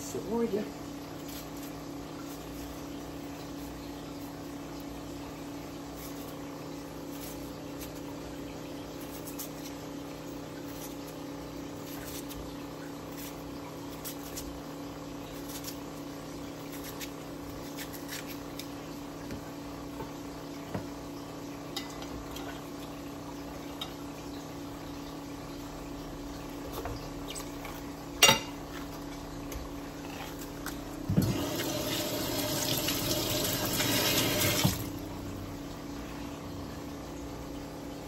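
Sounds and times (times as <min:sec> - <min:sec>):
motor hum: 0:00.0 - 0:38.0
knife slicing onion: 0:16.6 - 0:18.8.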